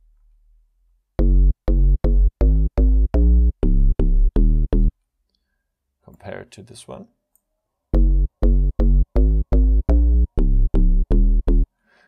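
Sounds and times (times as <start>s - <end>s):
deep synth bass line: 1.2s - 4.9s, 7.9s - 11.7s.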